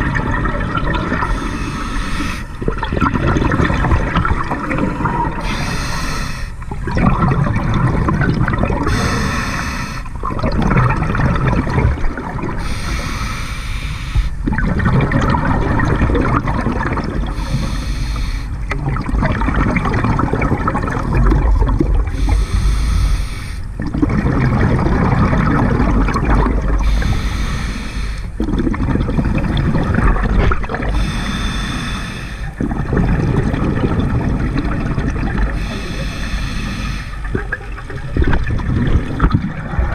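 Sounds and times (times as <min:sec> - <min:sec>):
exhaled bubbles gurgling: 0:00.0 - 0:39.9
regulator breathing hiss: 0:01.3 - 0:02.6, 0:05.4 - 0:06.6, 0:08.9 - 0:10.1, 0:12.6 - 0:14.4, 0:17.3 - 0:18.6, 0:22.2 - 0:23.8, 0:26.8 - 0:28.4, 0:31.0 - 0:32.6, 0:35.6 - 0:37.3.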